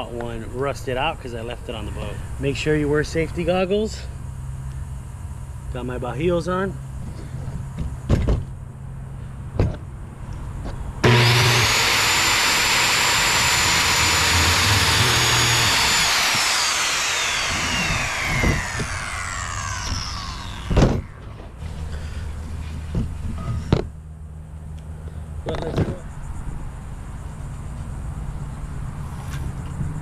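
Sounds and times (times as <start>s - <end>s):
saw blade spinning down: 11.0s - 21.4s
circular saw cutting wood: 11.0s - 21.6s.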